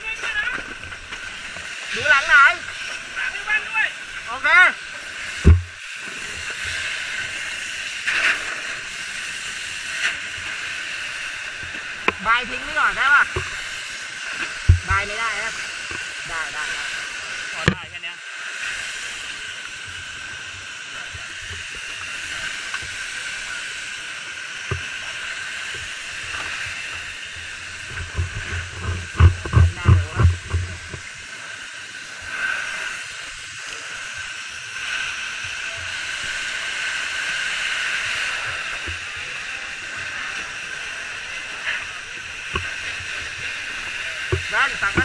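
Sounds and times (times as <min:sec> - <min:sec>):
fire hose spraying water: 0:00.0 - 0:45.0
close thuds and bumps: 0:05.4 - 0:05.8.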